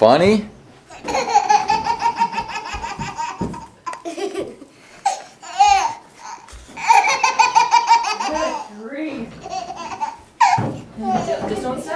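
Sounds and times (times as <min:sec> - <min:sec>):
young child giggling: 0:00.9 - 0:08.7.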